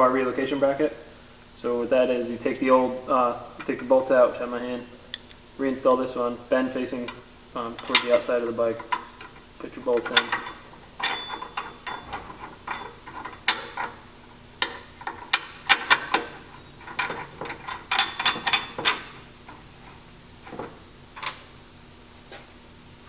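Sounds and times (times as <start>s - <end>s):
metal bolts clicking and clinking: 7.1s - 14.0s, 14.6s - 19.7s.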